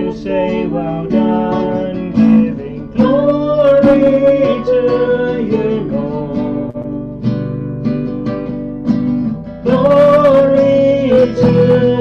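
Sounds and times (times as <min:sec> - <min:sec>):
acoustic guitar strumming chords: 0:00.0 - 0:12.0
person singing a long note: 0:09.7 - 0:12.0.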